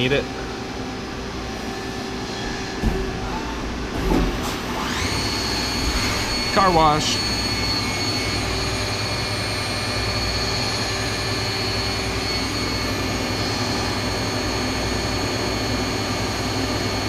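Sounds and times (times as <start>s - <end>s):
high machine whine: 0.0s - 17.0s
lathe running: 4.6s - 17.0s.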